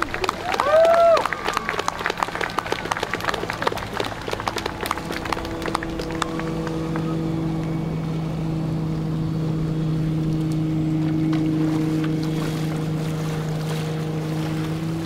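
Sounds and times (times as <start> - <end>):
applause: 0.0 - 7.2
engine drone: 0.0 - 15.0.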